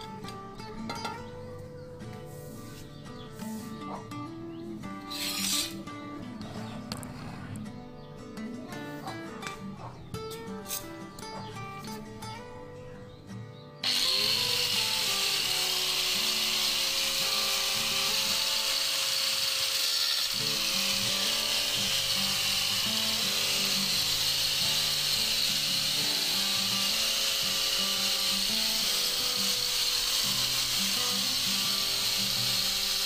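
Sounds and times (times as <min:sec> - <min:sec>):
angle grinder motor whining: 0:05.1 - 0:05.8, 0:13.8 - 0:33.0
disc grinding ceramic tile: 0:05.1 - 0:05.8, 0:13.8 - 0:33.0.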